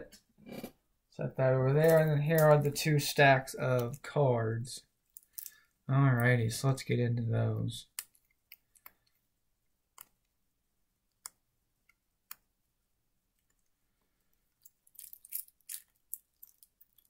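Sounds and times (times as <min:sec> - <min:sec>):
shrink wrap crinkling: 0:14.6 - 0:17.0.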